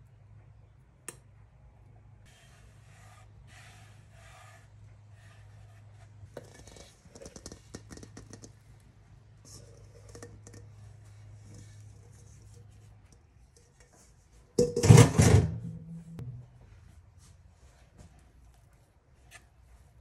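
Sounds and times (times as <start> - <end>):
hand rubbing flour on wooden board: 2.2 - 7.8
metal mixing bowl handled: 5.4 - 8.8, 9.4 - 16.4.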